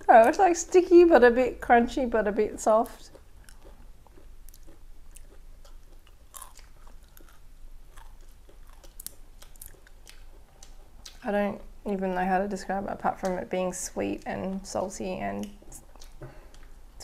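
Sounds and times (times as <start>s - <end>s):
chewing and crunching snack: 2.6s - 11.2s, 15.4s - 17.0s.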